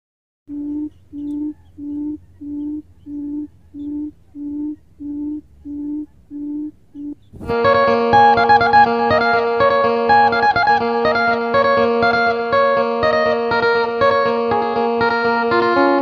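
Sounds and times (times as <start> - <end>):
faint high bird chirps: 0.5 - 7.4
bird deep hooting call: 0.5 - 7.5.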